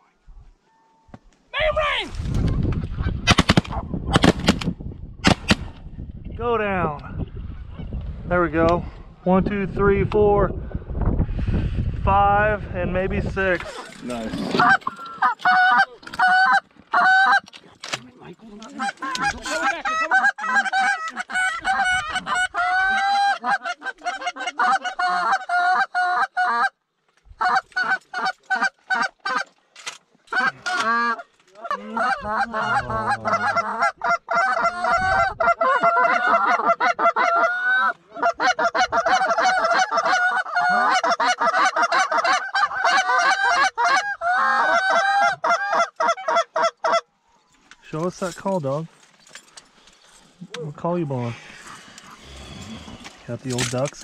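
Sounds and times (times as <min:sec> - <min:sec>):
goose call clucks and honks: 0:14.4 - 0:17.5, 0:18.6 - 0:26.8, 0:27.4 - 0:29.6, 0:30.3 - 0:47.1.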